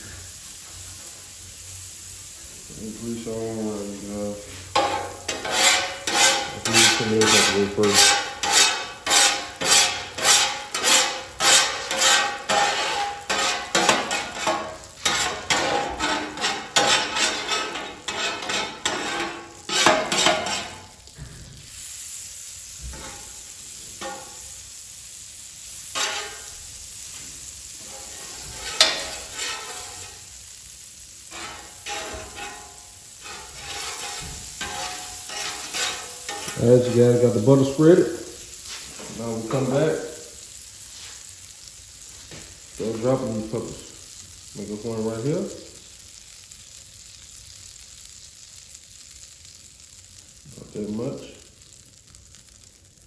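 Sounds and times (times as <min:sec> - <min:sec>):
butter sizzling on griddle: 0:00.0 - 0:53.0
metal spatula scraping griddle: 0:04.5 - 0:21.0, 0:22.9 - 0:23.4, 0:24.0 - 0:24.5, 0:25.8 - 0:26.7, 0:27.7 - 0:30.4, 0:31.2 - 0:40.3.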